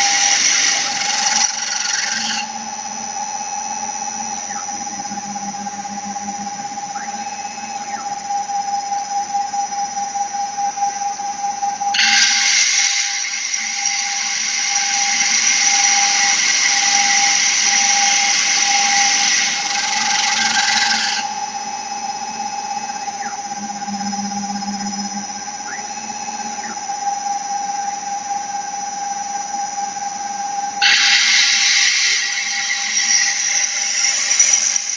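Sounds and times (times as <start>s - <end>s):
drill bit grinding stone: 0.0s - 2.8s, 12.0s - 21.6s, 30.8s - 34.9s
spindle motor whine: 0.0s - 34.9s.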